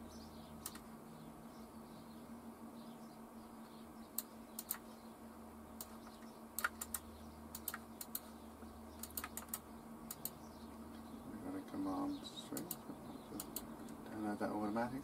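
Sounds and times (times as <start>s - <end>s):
faint steady hum: 0.0s - 15.0s
mouse and keyboard clicks: 0.6s - 0.9s, 6.6s - 7.0s, 7.6s - 8.3s, 9.0s - 10.4s.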